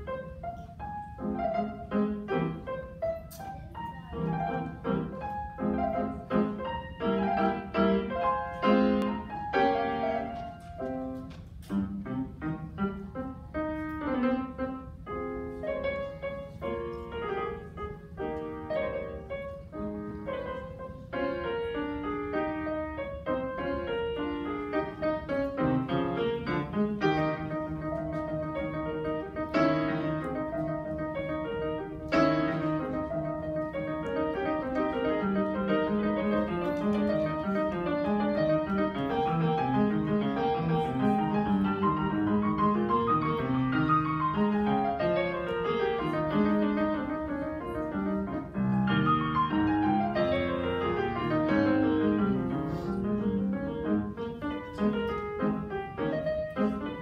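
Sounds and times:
grand piano playing: 0.0 - 57.0.

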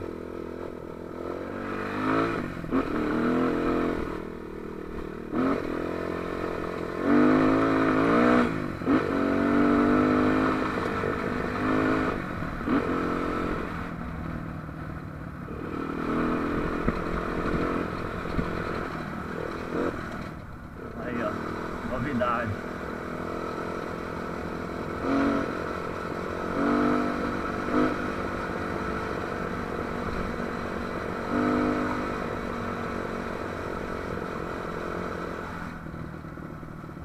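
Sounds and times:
dirt bike engine revving: 1.2 - 13.9, 15.5 - 35.5
bike rattling over bumps: 16.5 - 22.1.

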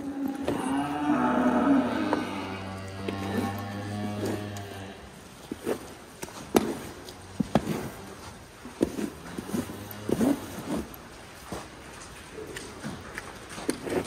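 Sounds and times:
scraper raking manure: 0.2 - 11.7.

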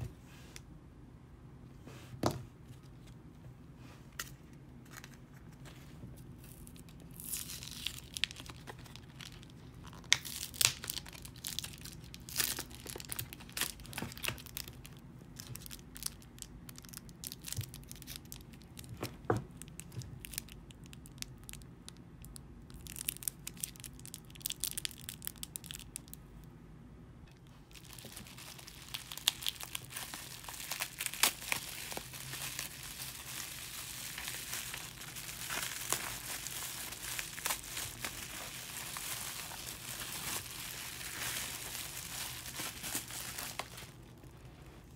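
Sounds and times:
bubble wrap crinkling: 4.8 - 26.2, 27.3 - 44.9
plastic packaging tearing: 6.6 - 18.9, 27.7 - 44.0.

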